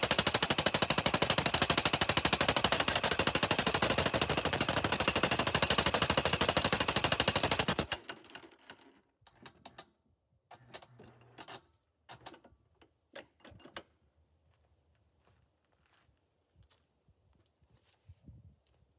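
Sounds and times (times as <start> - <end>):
jackhammer pounding log: 0.0 - 8.5.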